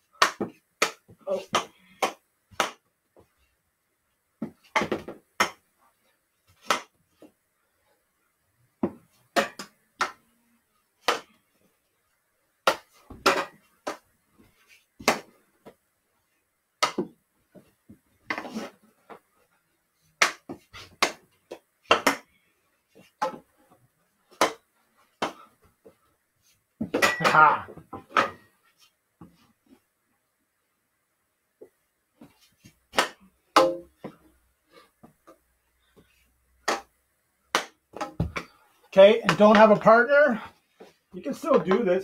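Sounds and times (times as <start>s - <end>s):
hockey stick knocking ball: 4.4s - 5.6s, 16.8s - 17.2s, 32.9s - 34.2s, 36.6s - 36.9s, 37.5s - 38.5s, 39.2s - 39.9s
plastic ball bouncing: 36.6s - 38.5s.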